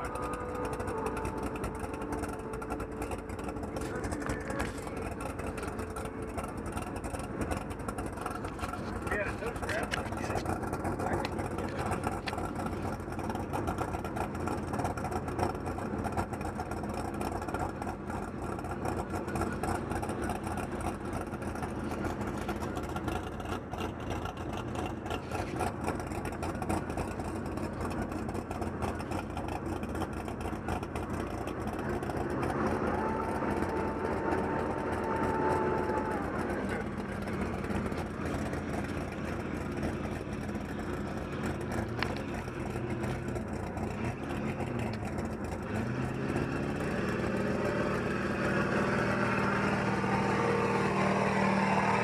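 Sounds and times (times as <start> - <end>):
high whining tone: 0.0 - 8.4
diesel engine running: 0.0 - 52.0.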